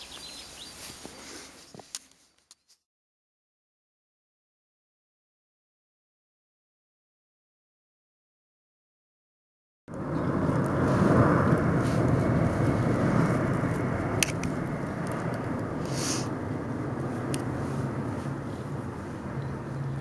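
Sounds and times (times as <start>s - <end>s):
outdoor background rumble: 9.9s - 20.0s.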